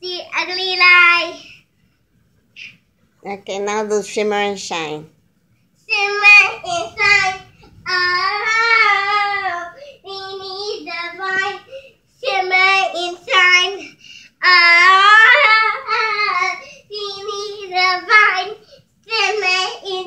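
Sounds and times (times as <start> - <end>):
girl singing in a high voice: 5.9 - 20.0.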